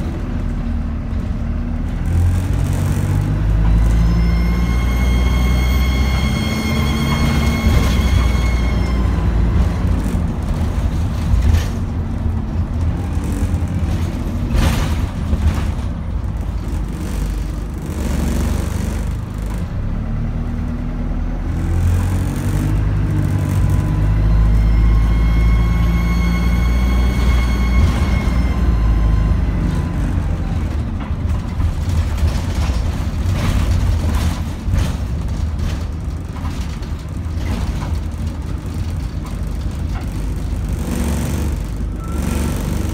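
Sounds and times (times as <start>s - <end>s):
bus engine rumble: 0.0s - 42.9s
bus engine whine: 0.0s - 42.9s
knocks and rattles: 6.8s - 19.9s, 29.7s - 42.9s.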